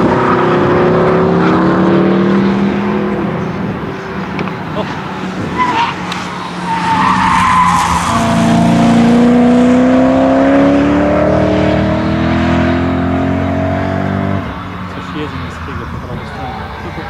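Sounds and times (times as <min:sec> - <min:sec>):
car engine accelerating hard: 0:00.0 - 0:17.0
tyre squeal: 0:04.9 - 0:08.6.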